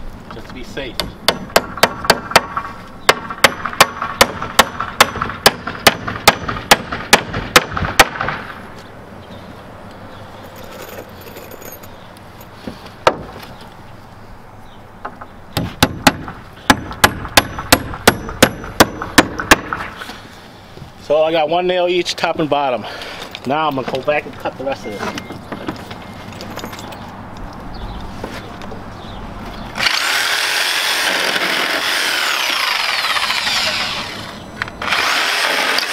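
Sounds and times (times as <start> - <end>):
hammer driving nails into wood: 1.0 - 8.4.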